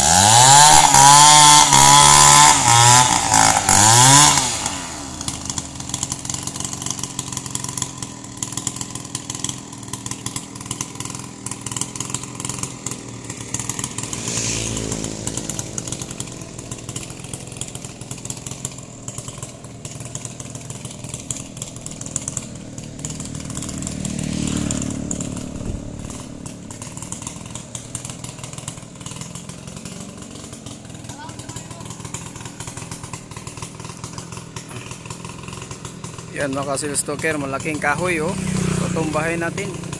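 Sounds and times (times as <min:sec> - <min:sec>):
chainsaw cutting wood: 0:00.0 - 0:39.9.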